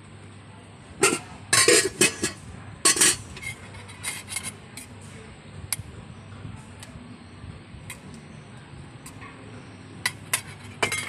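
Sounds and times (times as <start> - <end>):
low steady hum: 0.0 - 11.0
metal spoon scraping bowl: 1.0 - 4.9, 10.1 - 11.0.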